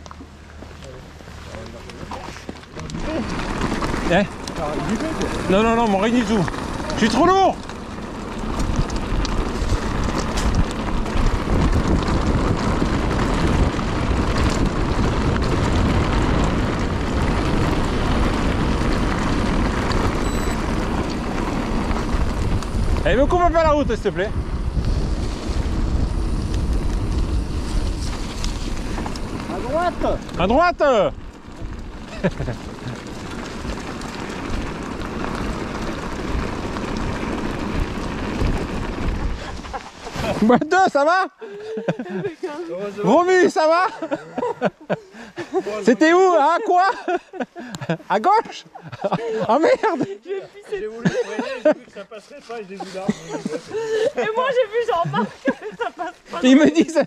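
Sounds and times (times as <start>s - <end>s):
bike tyres rumbling on trail: 0.0s - 57.0s
wind on microphone: 8.4s - 30.6s, 36.2s - 40.5s.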